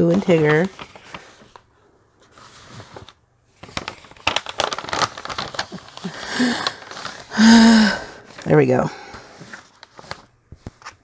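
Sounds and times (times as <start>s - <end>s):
plastic film crinkling: 0.0s - 11.0s
person humming: 7.3s - 8.1s.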